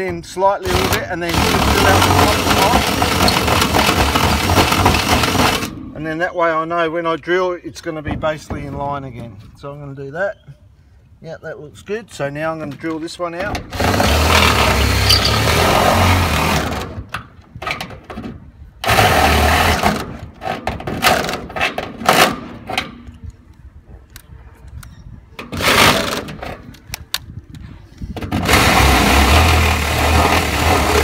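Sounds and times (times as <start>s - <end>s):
power drill boring metal: 0.7s - 5.7s, 13.8s - 16.6s, 28.4s - 31.0s.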